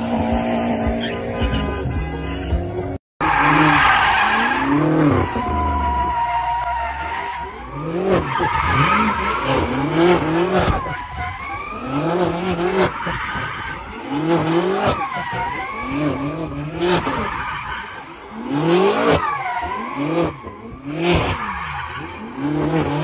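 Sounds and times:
car engines revving: 0:00.0 - 0:23.0
tyres squealing on tarmac: 0:03.2 - 0:23.0.

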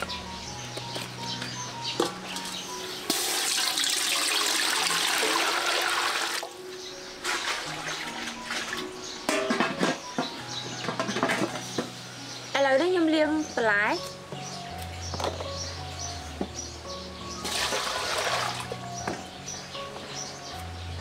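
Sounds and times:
soft background music: 0:00.0 - 0:21.0
water pouring: 0:03.1 - 0:06.5, 0:17.4 - 0:18.8.

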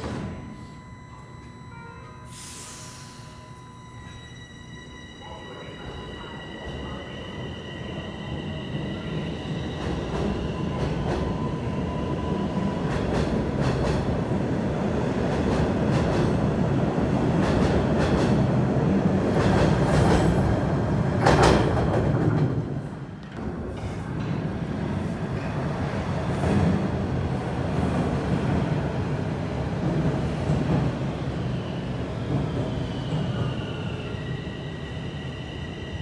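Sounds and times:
subway train electric whine: 0:00.0 - 0:36.0
loud train clank: 0:21.2 - 0:24.6.

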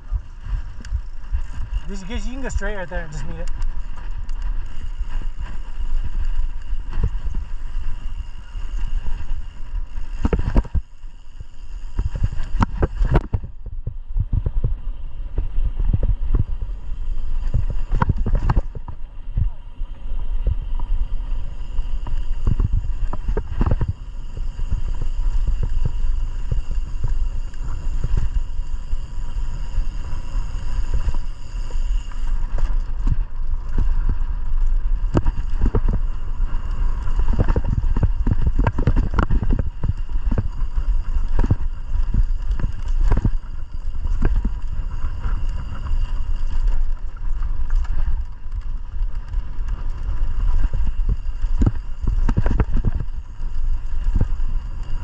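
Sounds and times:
wind rumble on microphone: 0:00.0 - 0:55.0
bike knocks and rattles: 0:11.9 - 0:19.7, 0:32.5 - 0:54.6.

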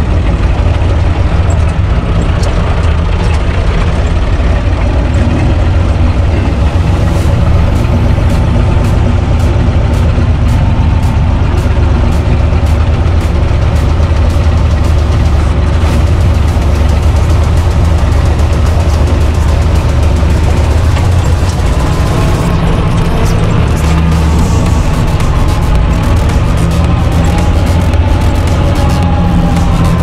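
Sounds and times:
tractor diesel engine running: 0:00.0 - 0:30.0
light rhythmic rattle: 0:01.2 - 0:30.0.

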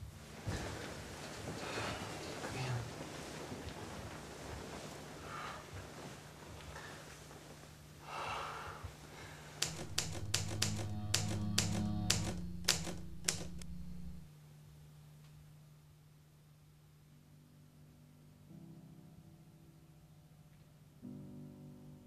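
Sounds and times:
typewriter key strikes: 0:09.6 - 0:14.2
low droning music tone: 0:09.6 - 0:14.3.

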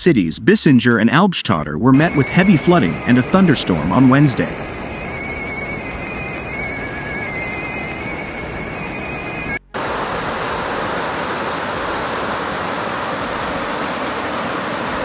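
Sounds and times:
rushing floodwater: 0:01.9 - 0:06.2, 0:09.8 - 0:15.0.

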